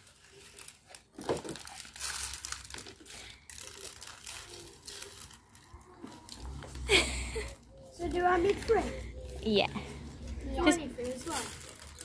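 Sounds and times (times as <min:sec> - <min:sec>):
seed clicking and rattling: 0:00.0 - 0:06.6
paper bag crinkling: 0:00.0 - 0:07.7, 0:10.8 - 0:12.0.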